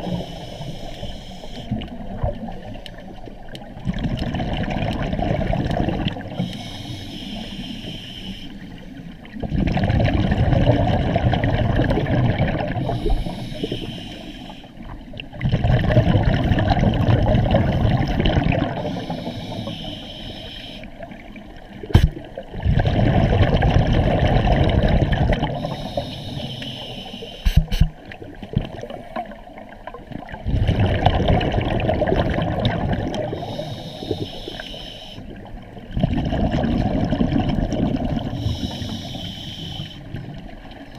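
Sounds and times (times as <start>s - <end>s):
hissing inhalations: 0.1s - 1.8s, 6.4s - 8.8s, 12.8s - 14.8s, 18.8s - 20.9s, 25.6s - 27.7s, 33.3s - 35.3s, 38.4s - 40.1s
bubbling rush of exhaled air: 3.8s - 6.5s, 9.4s - 13.7s, 15.4s - 19.3s, 22.0s - 26.0s, 30.3s - 34.2s, 35.9s - 39.2s.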